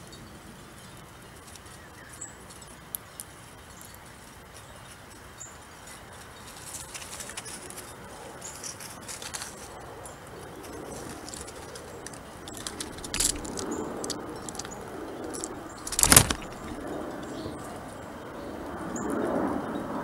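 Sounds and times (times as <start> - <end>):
squirrel scrambling on logs: 1.4 - 17.0
scraping thump: 15.9 - 16.8.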